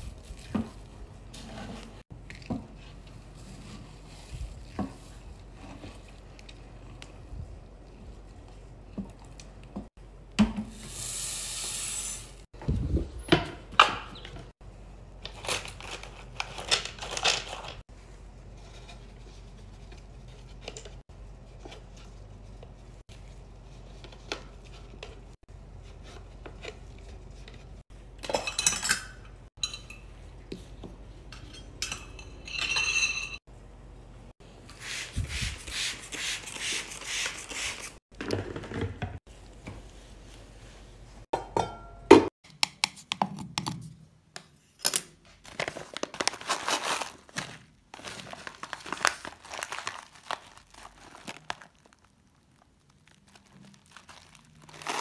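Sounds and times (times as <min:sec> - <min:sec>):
plastic bag crinkling: 0:45.4 - 0:55.0.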